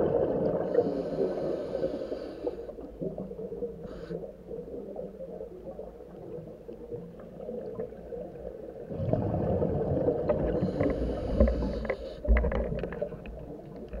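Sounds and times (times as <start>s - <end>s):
exhaled bubbles crackling: 0.0s - 1.6s, 2.6s - 14.0s
diver breathing through regulator: 0.7s - 2.8s, 10.5s - 12.4s.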